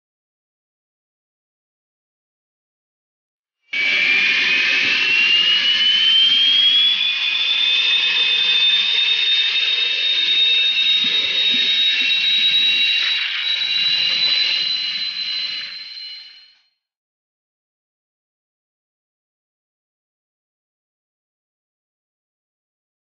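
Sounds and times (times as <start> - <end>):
high engine whine: 3.8 - 16.4.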